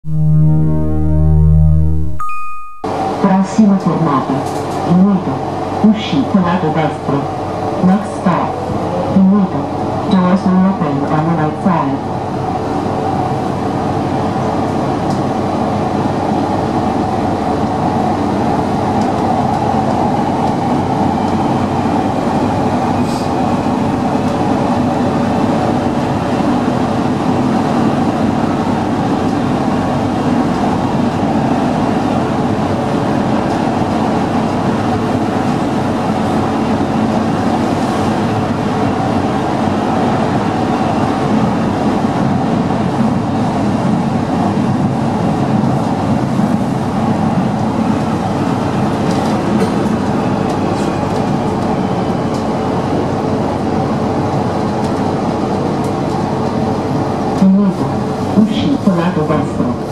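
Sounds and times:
steady hum: 0:00.0 - 0:03.5
train wheels roaring on rail: 0:02.9 - 0:59.9.

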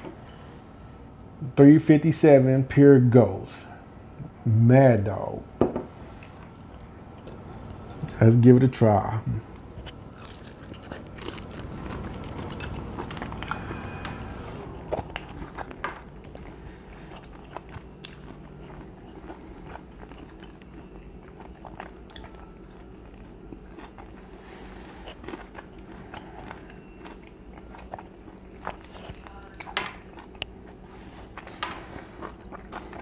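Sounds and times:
person chewing chicken: 0:09.5 - 0:33.0.

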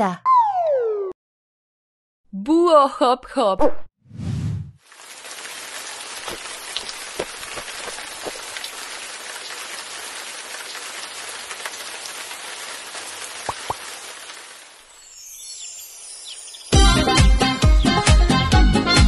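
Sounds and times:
steady rain falling: 0:04.8 - 0:16.8.

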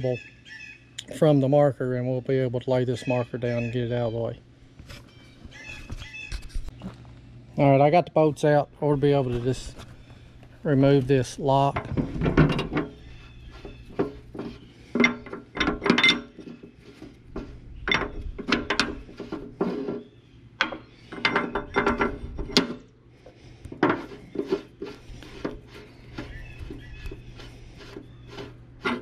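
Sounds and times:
steady low hum: 0:00.0 - 0:29.0
metal clanks and rattles: 0:10.9 - 0:22.9, 0:23.7 - 0:29.0.

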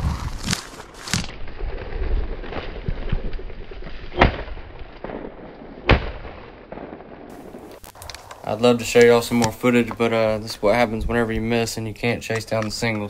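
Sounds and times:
shotgun shots: 0:04.2 - 0:07.6.

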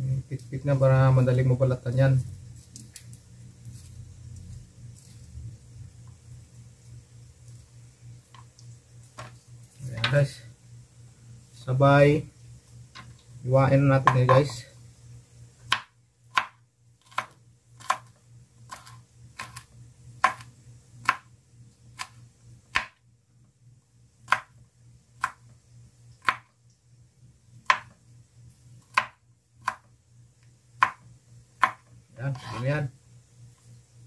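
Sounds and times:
knife chopping on wooden board: 0:15.7 - 0:18.1, 0:18.7 - 0:21.3, 0:22.0 - 0:23.0, 0:24.3 - 0:24.6, 0:25.2 - 0:25.4, 0:26.2 - 0:26.5, 0:27.6 - 0:28.0, 0:28.9 - 0:29.9, 0:30.8 - 0:31.0, 0:31.6 - 0:32.7.

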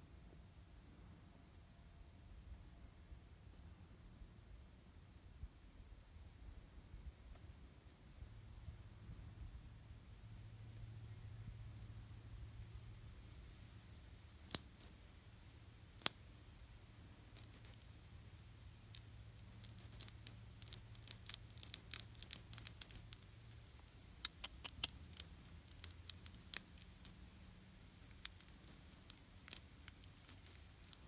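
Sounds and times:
faint low hum: 0:00.0 - 0:31.0
sharp clicks and crackles: 0:14.3 - 0:15.0, 0:15.8 - 0:31.0.

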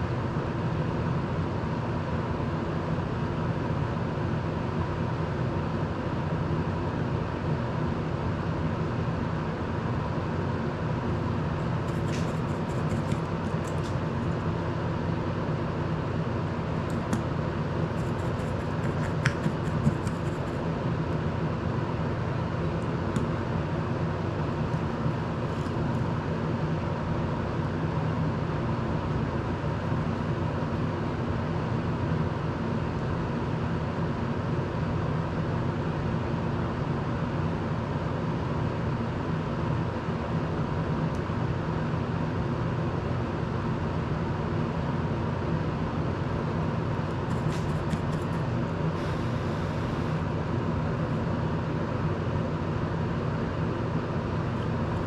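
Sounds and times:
electric fan whirring: 0:00.0 - 0:55.0.

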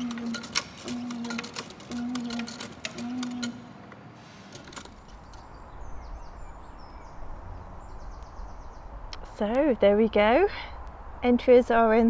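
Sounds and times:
mechanism clicking and whirring: 0:00.0 - 0:05.6
small birds chirping: 0:05.0 - 0:11.0.

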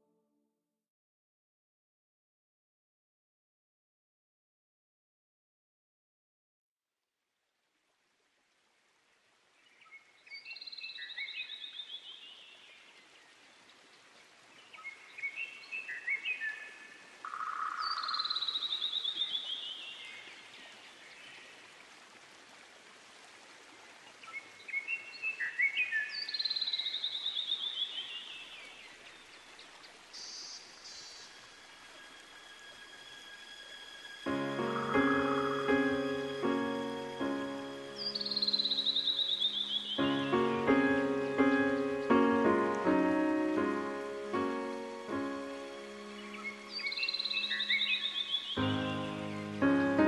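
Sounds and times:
outdoor ambience hiss: 0:07.2 - 0:50.0
songbird singing: 0:09.6 - 0:21.6, 0:24.0 - 0:50.0.

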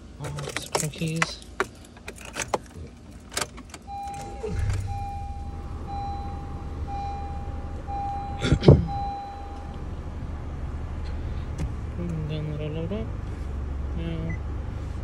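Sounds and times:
car engine starting and idling: 0:00.0 - 0:15.0
dashboard warning chime beeps: 0:03.8 - 0:09.9.

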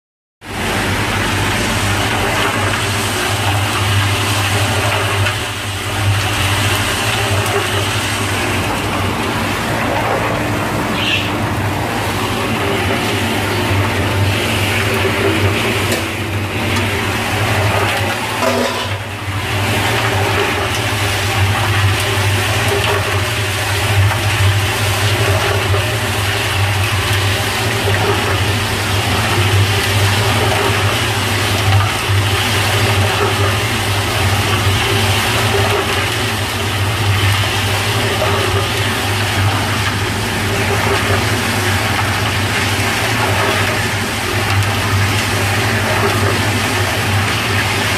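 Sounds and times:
concrete mixer humming: 0:00.4 - 0:47.9
wet concrete sloshing in drum: 0:00.6 - 0:47.9.

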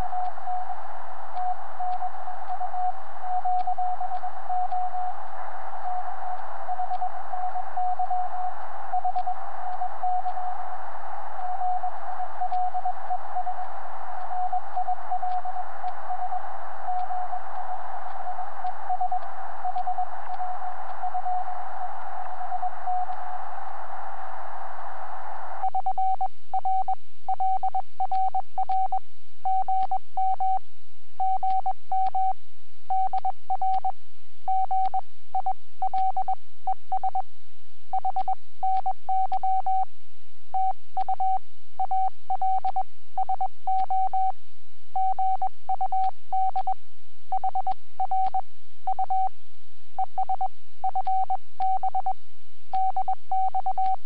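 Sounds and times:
radio band noise hiss: 0:00.0 - 0:25.8
morse code tone: 0:05.8 - 0:24.2, 0:45.0 - 0:49.3, 0:50.0 - 0:52.2.

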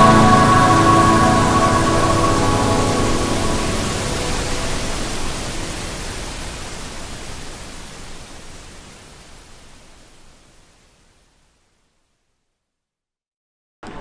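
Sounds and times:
background music: 0:00.0 - 0:05.6
waterfall rushing: 0:00.0 - 0:10.7.

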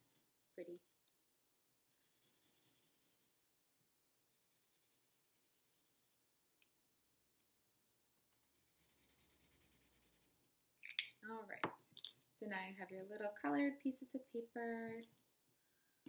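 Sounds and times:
marker scribbling on paper: 0:01.9 - 0:03.4, 0:04.3 - 0:06.2, 0:08.4 - 0:10.3.

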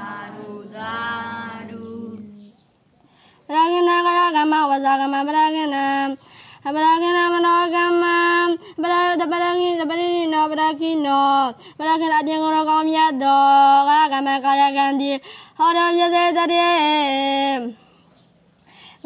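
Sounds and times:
person chanting: 0:00.0 - 0:02.6.

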